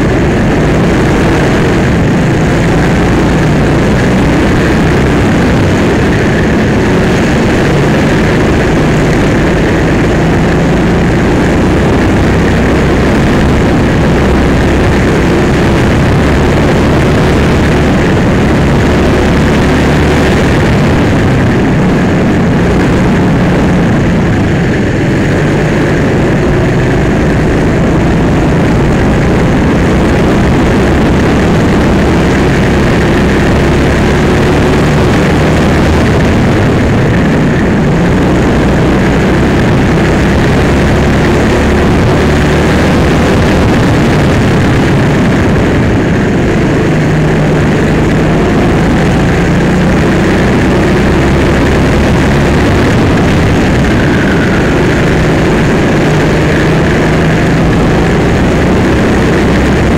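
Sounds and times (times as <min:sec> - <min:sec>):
go-kart engine running hard: 0:00.0 - 0:59.9.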